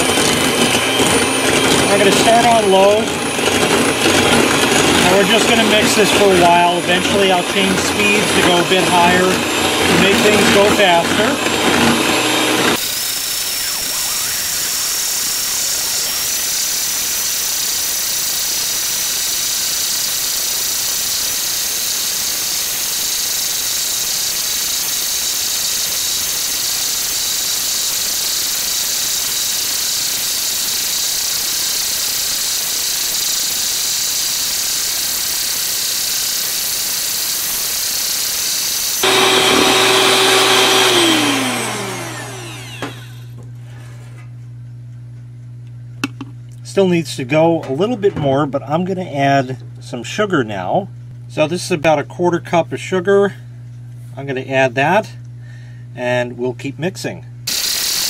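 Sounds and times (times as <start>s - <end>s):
electric hand mixer whipping cream: 0.0s - 43.4s, 57.5s - 58.0s.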